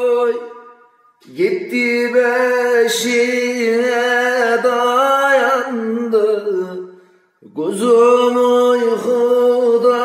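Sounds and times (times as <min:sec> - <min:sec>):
man singing unaccompanied: 0:00.0 - 0:10.0.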